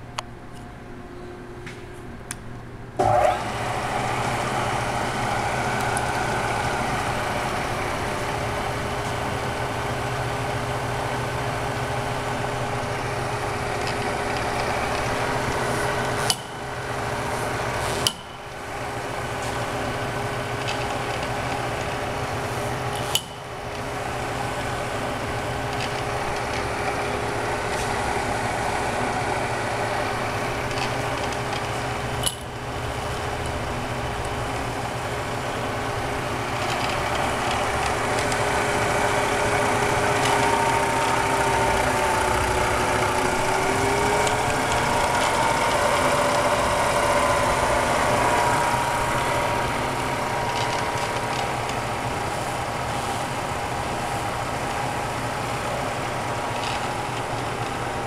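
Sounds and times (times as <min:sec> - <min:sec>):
milling machine motor hum: 0:03.0 - 0:58.0
higher whine: 0:33.6 - 0:57.1.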